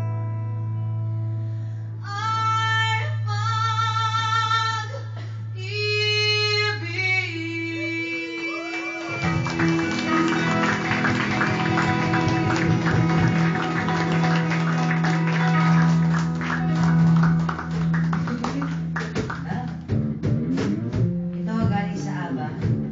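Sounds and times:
woman singing: 2.0s - 9.7s
guitars strumming: 9.1s - 22.9s.

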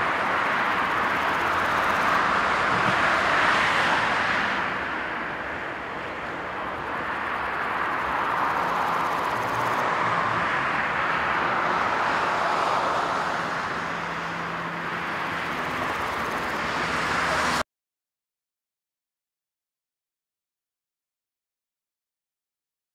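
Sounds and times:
jet engines at take-off thrust: 0.0s - 17.6s.

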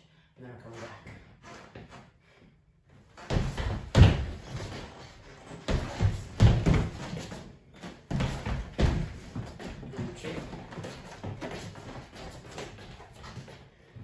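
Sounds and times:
feet thudding on hardwood floor: 3.2s - 13.6s.

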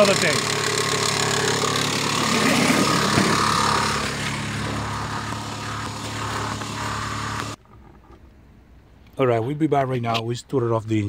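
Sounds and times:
car engine running: 0.0s - 8.3s.

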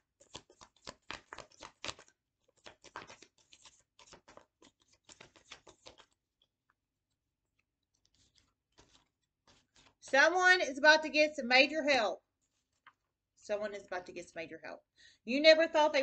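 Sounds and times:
cards being shuffled: 0.1s - 6.2s, 8.0s - 10.1s.

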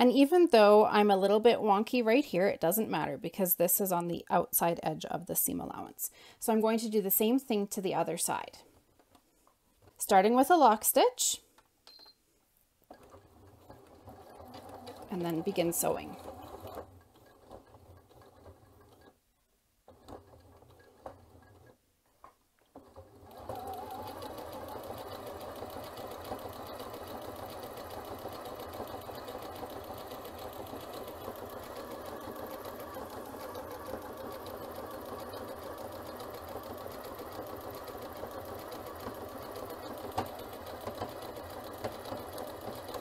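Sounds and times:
sewing machine sewing: 12.8s - 21.8s, 22.6s - 43.0s.

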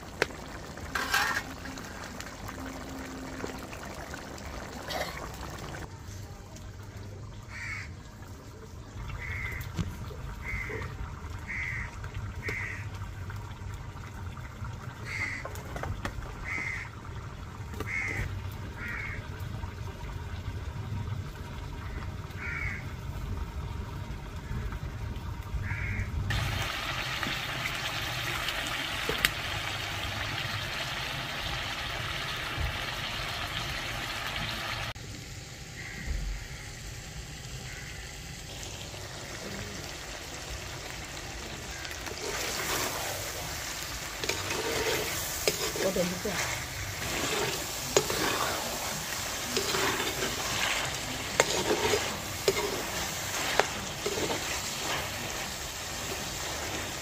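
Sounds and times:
crow cawing: 7.5s - 7.9s, 9.2s - 9.7s, 10.4s - 10.9s, 11.5s - 12.9s, 16.4s - 16.9s, 17.9s - 19.2s, 22.4s - 22.8s, 25.6s - 26.1s, 35.8s - 36.7s, 37.6s - 38.2s
steady hiss: 41.4s - 57.0s.

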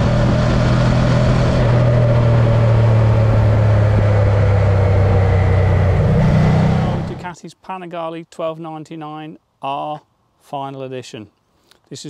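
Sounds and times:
motorcycle engine cruising: 0.0s - 7.2s.

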